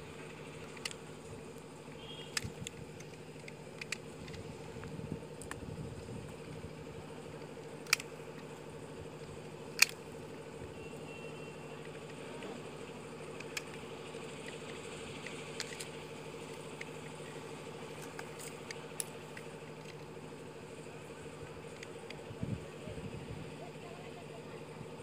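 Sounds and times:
engine-like hum: 0.0s - 25.0s
sharp clicks: 2.0s - 5.6s, 7.4s - 8.6s, 9.7s - 10.1s, 13.3s - 20.1s.

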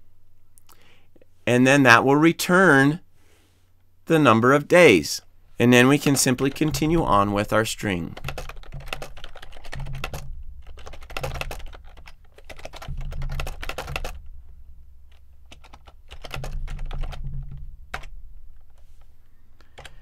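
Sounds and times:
typing on computer keyboard: 6.1s - 14.2s, 15.5s - 18.1s, 19.7s - 20.0s.

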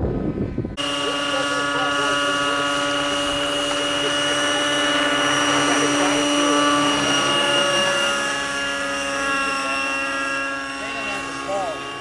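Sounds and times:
model helicopter engine whine: 0.0s - 12.0s.

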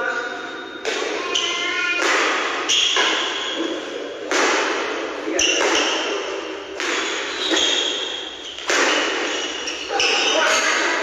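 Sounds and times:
rackets hitting shuttlecock: 0.8s - 1.4s, 2.0s - 11.0s
shoes squeaking on court: 2.6s - 4.0s, 5.3s - 11.0s.

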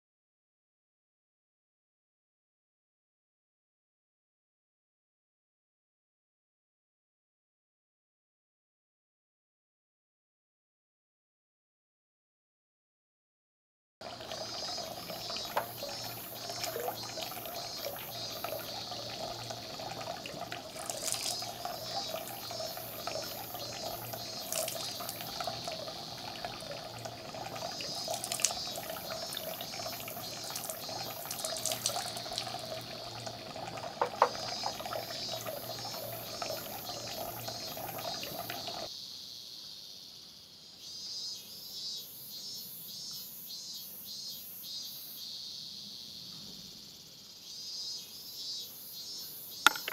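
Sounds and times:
water trickling from spout: 14.0s - 38.9s, 49.7s - 49.9s
insects chirping: 14.0s - 49.9s
sharp knocks: 49.7s - 49.9s.

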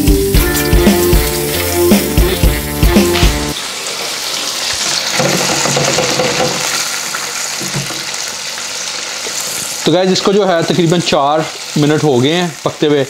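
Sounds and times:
background music with a beat: 0.0s - 3.6s
chicken deep-frying in oil: 0.0s - 13.0s.

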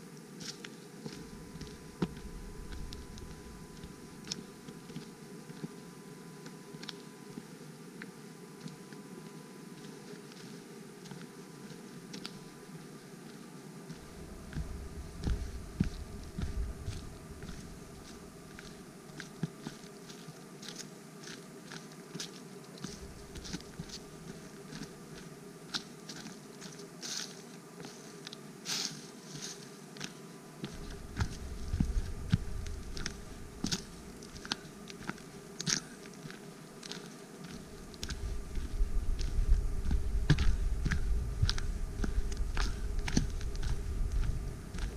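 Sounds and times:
footsteps crunching on dry leaves: 0.4s - 4.4s, 13.9s - 44.9s
low rumble: 1.3s - 4.0s, 14.0s - 18.6s, 30.8s - 34.4s, 38.0s - 44.9s.

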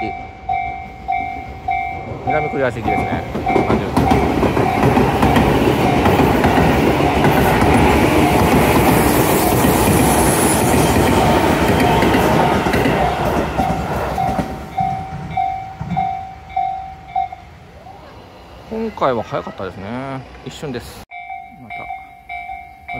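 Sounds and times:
crossing bell ringing: 0.0s - 17.7s, 18.3s - 22.9s
train wheels clattering on rails: 1.9s - 17.2s.

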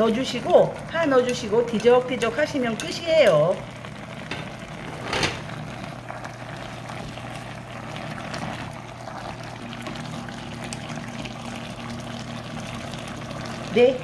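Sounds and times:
wooden spoon stirring: 0.0s - 3.6s
stew bubbling in a pot: 0.0s - 14.0s.

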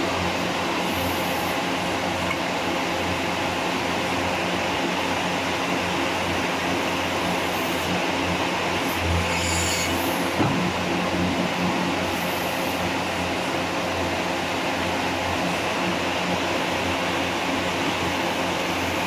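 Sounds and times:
drilling rig hum: 0.0s - 19.0s.

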